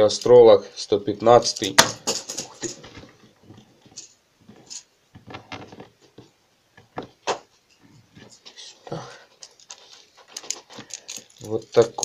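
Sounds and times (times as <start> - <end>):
plastic clicks and rustles: 9.4 - 12.0.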